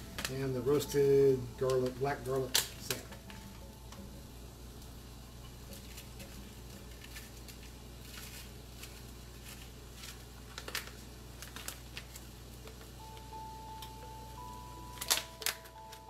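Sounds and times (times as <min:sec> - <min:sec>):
steady high tone: 0:00.0 - 0:05.4, 0:13.0 - 0:16.0
steady low hum: 0:00.0 - 0:16.0.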